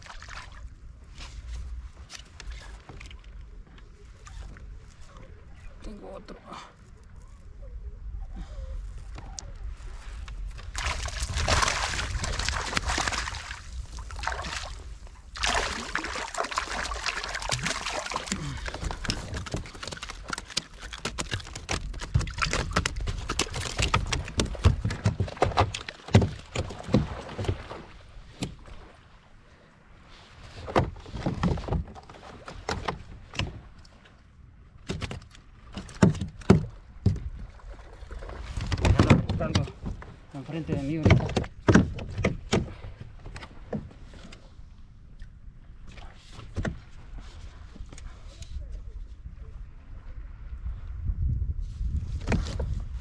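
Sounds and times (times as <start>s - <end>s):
water splashing at a kayak: 0.0s - 53.0s
knocks on kayak hull: 40.7s - 42.8s.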